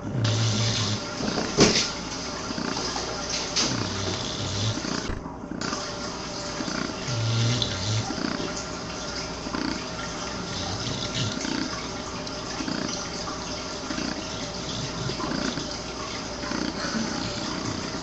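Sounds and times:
dog grunt: 0.0 - 1.8, 3.6 - 5.8, 6.6 - 8.6, 9.5 - 11.9, 12.5 - 13.1, 13.8 - 15.8, 16.4 - 18.0
dog snuffling breaths: 0.0 - 1.9, 2.6 - 5.8, 6.6 - 8.5, 9.5 - 11.8, 13.9 - 15.8, 16.4 - 18.0
dog slurping and suckling toy: 0.0 - 8.6, 9.5 - 18.0.

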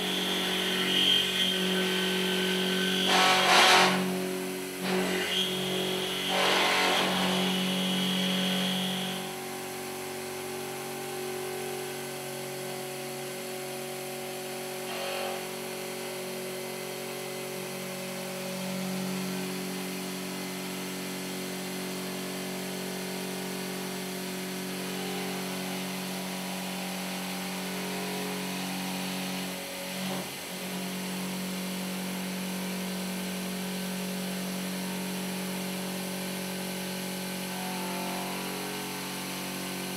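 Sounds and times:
milling machine hum: 0.0 - 10.5, 33.6 - 39.9
high machine whine: 0.0 - 39.9.

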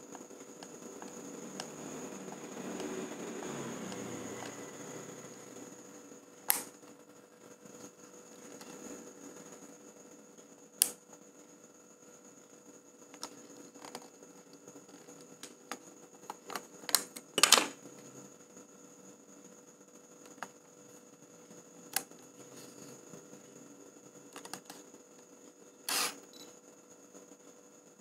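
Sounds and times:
camera shutter clatter: 25.9 - 26.2.

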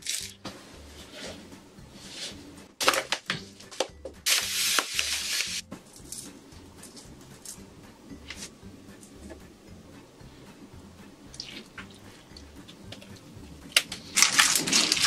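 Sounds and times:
faint background music with beat: 0.0 - 15.0
paper and packaging crinkling: 13.8 - 15.0.

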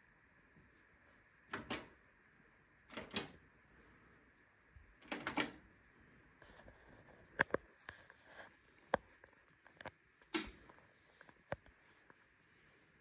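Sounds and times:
washing machine buttons clicking: 1.5 - 2.0, 2.9 - 3.4, 5.0 - 5.6, 10.3 - 10.6.

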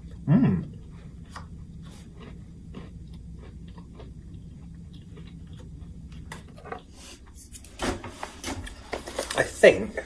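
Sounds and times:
man chewing cookie: 0.0 - 7.6
steady low hum: 0.0 - 10.0.

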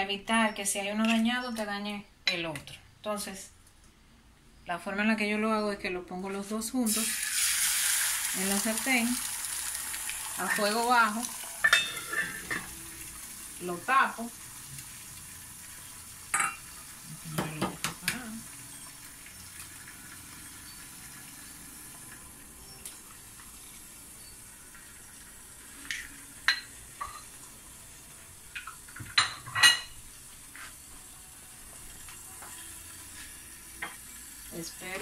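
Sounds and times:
eggs sizzling in a pan: 6.4 - 35.0
dishes and utensils clinking: 11.6 - 12.8, 16.3 - 16.6, 26.4 - 27.4, 28.6 - 30.0.

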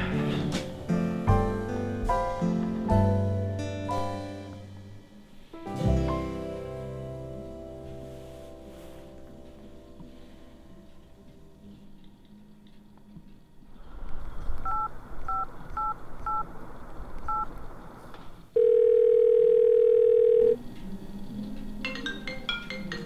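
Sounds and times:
keypad beeps: 14.6 - 16.4, 17.3 - 17.5
ringback tone: 18.6 - 20.6.

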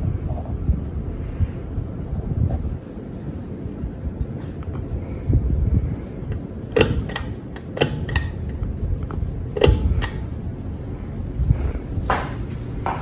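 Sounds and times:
ceiling fan humming: 0.0 - 13.0
pull-chain switch clicks: 6.8 - 8.4.

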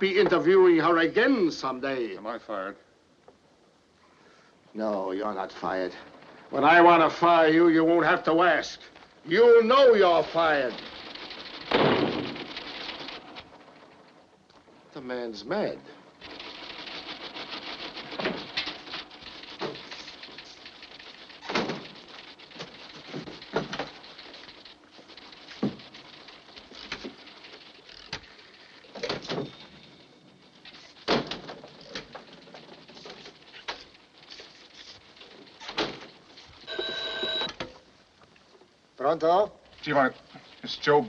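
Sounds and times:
constant hiss: 0.0 - 41.0
old telephone bell ringing: 36.7 - 37.6.

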